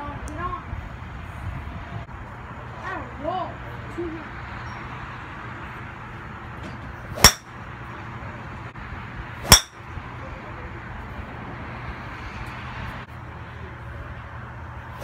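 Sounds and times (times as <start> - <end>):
golf club striking ball: 7.2 - 7.5, 9.4 - 9.8.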